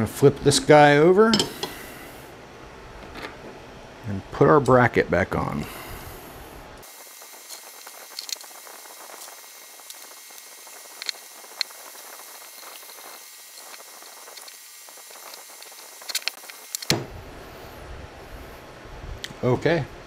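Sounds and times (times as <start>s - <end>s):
steady hiss: 0.0s - 2.5s, 4.1s - 20.0s
metal parts clicking: 15.6s - 16.9s.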